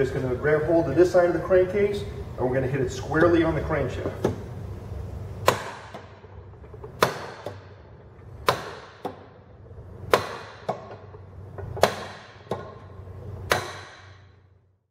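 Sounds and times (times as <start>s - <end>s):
hammer striking metal shaft: 10.1s - 14.4s.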